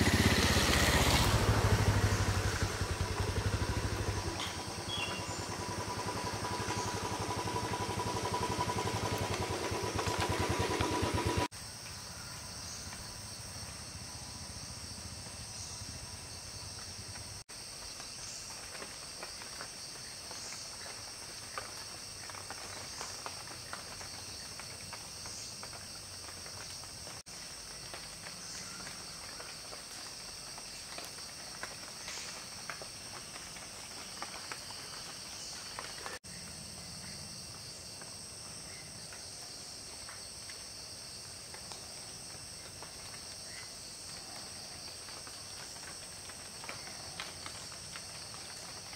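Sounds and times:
engine running: 0.0s - 11.5s
forest insects shrilling: 0.0s - 14.5s, 38.6s - 48.9s.

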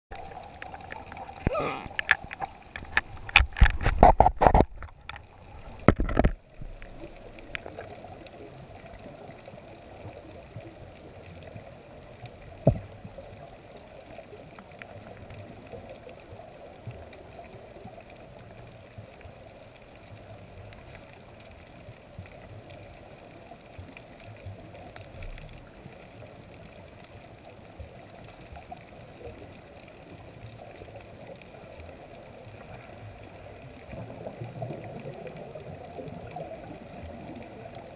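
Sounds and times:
muffled underwater water hiss: 0.1s - 37.9s
knocks and bumps on camera: 2.8s - 5.0s, 5.8s - 6.4s.

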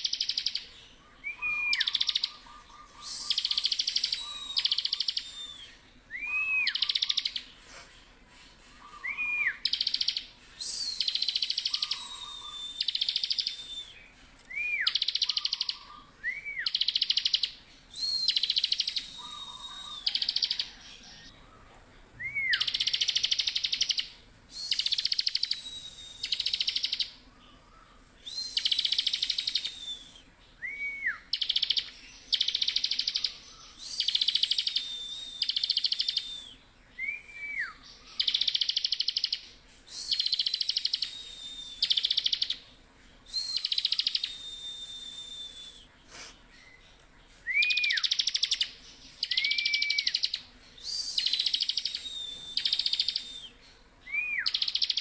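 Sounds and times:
bird high held whistle: 1.2s - 2.4s, 3.0s - 7.4s, 8.9s - 20.8s, 22.2s - 27.2s, 28.2s - 42.6s, 43.3s - 46.4s, 47.4s - 55.0s
bird rising and dropping whistle: 43.3s - 45.9s, 49.2s - 54.7s.

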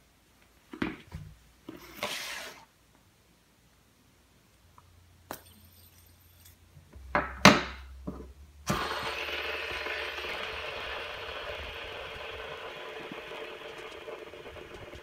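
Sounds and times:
fidget spinner whirring: 8.7s - 15.0s.

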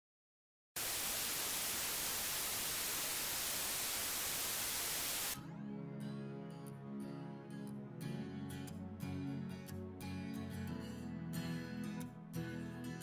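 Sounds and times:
static hiss: 0.8s - 5.4s
soft music with held notes: 5.4s - 13.0s.

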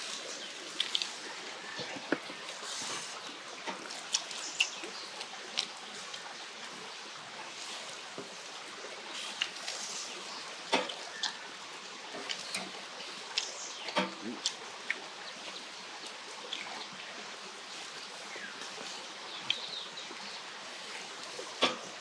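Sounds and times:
meat sizzling on a grill: 2.5s - 6.3s, 7.4s - 14.6s, 20.7s - 22.0s.

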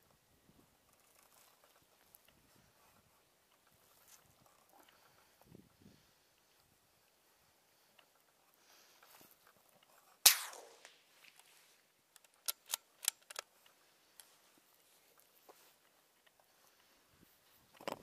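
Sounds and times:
rifle shot: 10.2s - 11.0s
sharp clicks: 12.1s - 13.5s.

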